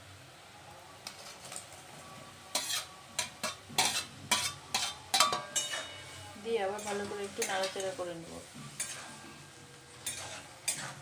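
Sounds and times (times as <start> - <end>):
faint sizzling: 0.0 - 11.0
metal plate and spoon clanking: 2.6 - 6.2, 8.8 - 9.4, 10.0 - 11.0.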